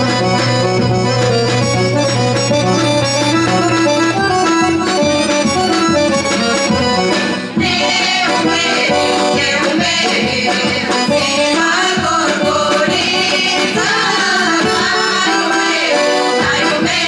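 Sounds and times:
low held bass note: 0.0s - 5.9s
accordion playing folk tune: 0.0s - 17.0s.

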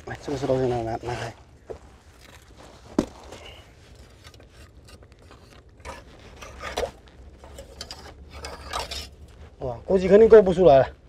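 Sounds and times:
metal hook scraping rock: 3.9s - 9.4s.

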